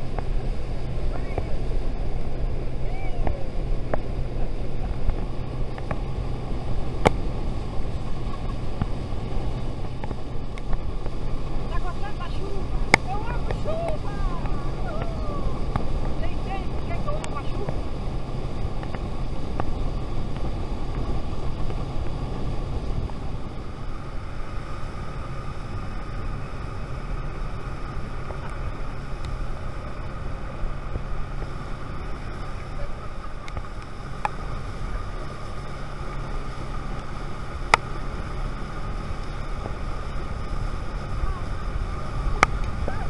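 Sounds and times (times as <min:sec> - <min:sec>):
outboard motor humming: 0:00.0 - 0:43.0
water rushing past hull: 0:00.0 - 0:43.0
wind on microphone: 0:00.0 - 0:43.0.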